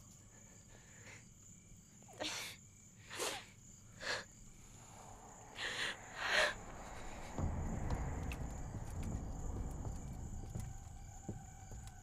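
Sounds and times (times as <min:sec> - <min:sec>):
crickets chirring: 0:00.0 - 0:12.0
low rumble: 0:04.5 - 0:12.0.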